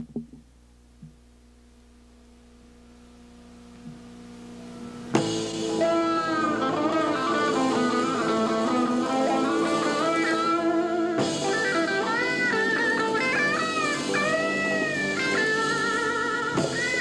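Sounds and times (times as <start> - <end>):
rock band playing: 5.1 - 17.0.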